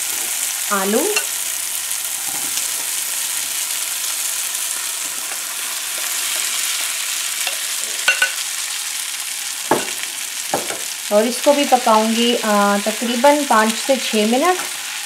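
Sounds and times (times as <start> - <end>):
peas sizzling in frying pan: 0.0 - 15.0
spoon knocks on pan: 9.7 - 10.9.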